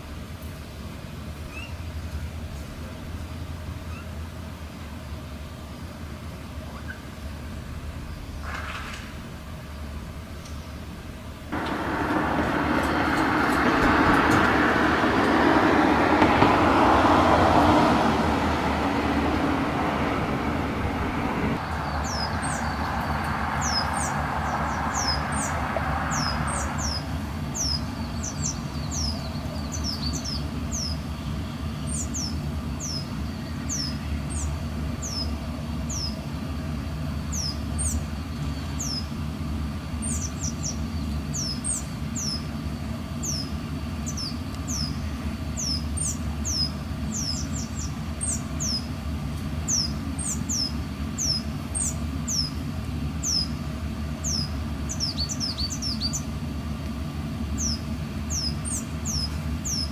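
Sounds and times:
loud rushing noise: 0:11.5 - 0:28.2.

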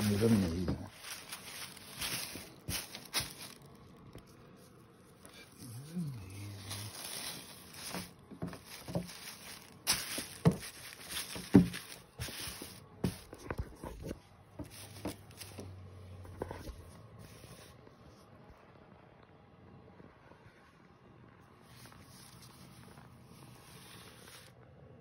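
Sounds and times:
fabric rustling: 0:00.0 - 0:17.8, 0:21.7 - 0:24.6
handling knocks and clicks: 0:06.9 - 0:15.7.

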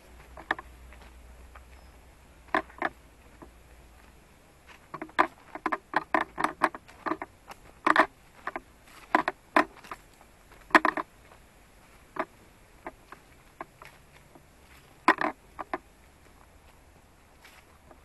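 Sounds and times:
footsteps on dry leaves: 0:06.8 - 0:09.1, 0:13.0 - 0:15.0, 0:16.0 - 0:18.0.

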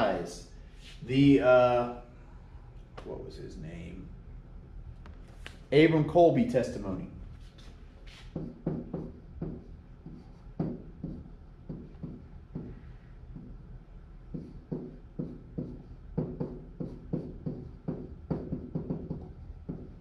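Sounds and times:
steady low hum: 0:00.0 - 0:20.0
pen tapping on whiteboard: 0:08.3 - 0:13.6, 0:14.3 - 0:20.0.

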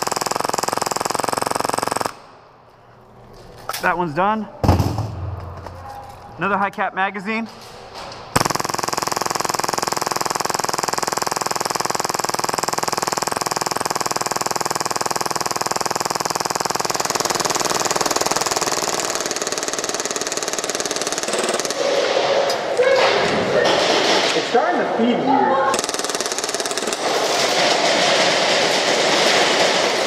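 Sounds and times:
airsoft pistol rapid fire: 0:00.0 - 0:02.3, 0:08.4 - 0:22.0, 0:25.7 - 0:30.0.

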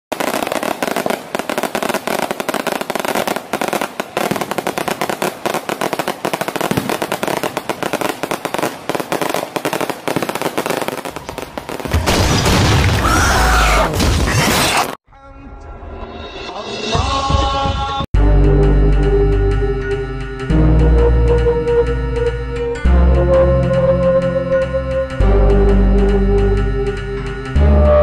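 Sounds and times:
firecrackers crackling: 0:00.1 - 0:13.2.

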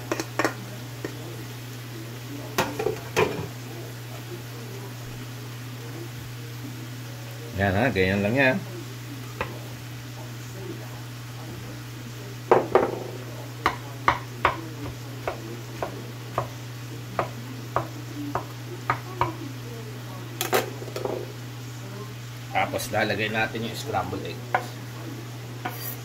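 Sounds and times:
utensil tapping cookware: 0:00.1 - 0:01.2, 0:12.5 - 0:16.5.

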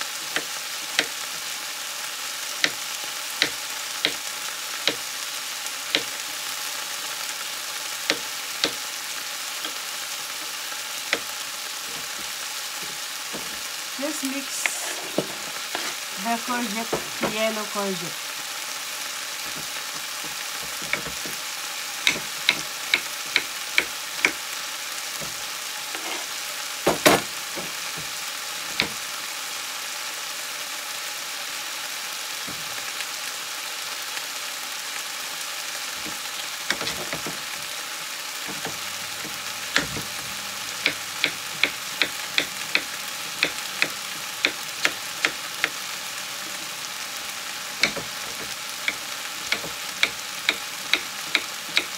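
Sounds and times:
vegetables sizzling in frying pan: 0:00.0 - 0:51.9
knife chopping on wooden board: 0:08.1 - 0:08.8, 0:11.9 - 0:13.6, 0:19.5 - 0:21.4, 0:22.1 - 0:24.4, 0:28.8 - 0:29.0, 0:36.0 - 0:37.4, 0:38.5 - 0:40.2, 0:40.8 - 0:45.8, 0:47.8 - 0:51.9.

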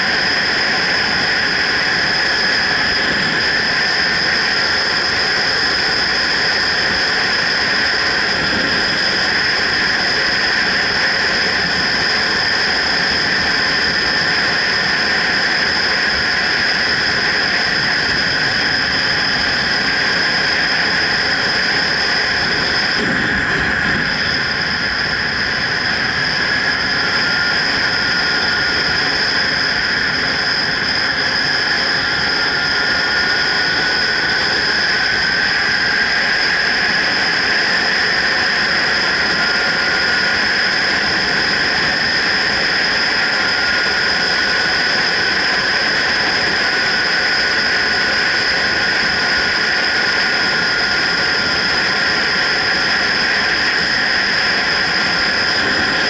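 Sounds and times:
wind rush: 0:00.0 - 0:56.0.

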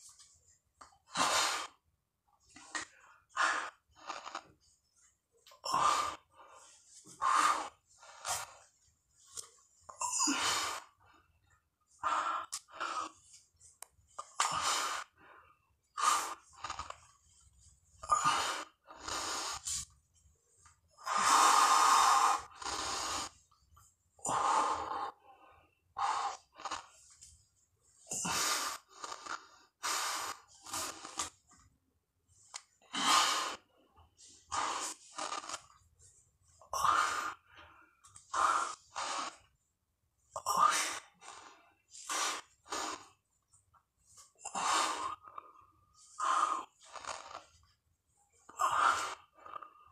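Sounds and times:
man breathing heavily: 0:05.7 - 0:09.4, 0:44.5 - 0:47.5.

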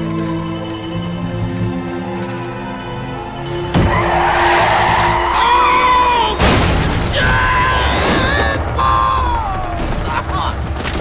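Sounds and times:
car tyres squealing: 0:03.7 - 0:06.4.

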